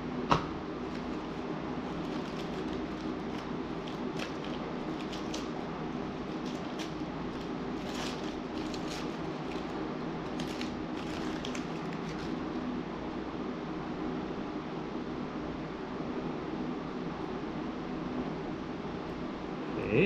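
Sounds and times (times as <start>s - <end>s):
steady background hum: 0.0s - 20.0s
paper wrapping crinkling: 0.8s - 12.5s.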